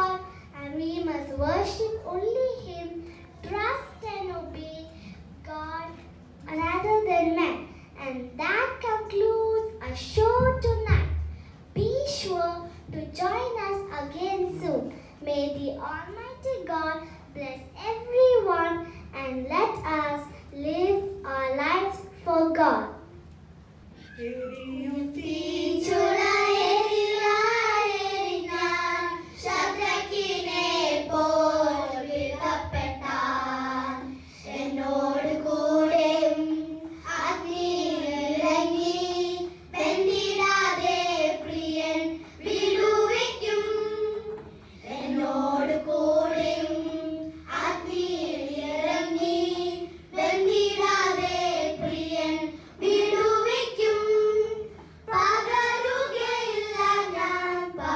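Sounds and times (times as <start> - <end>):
children singing into microphones: 24.0 - 57.9.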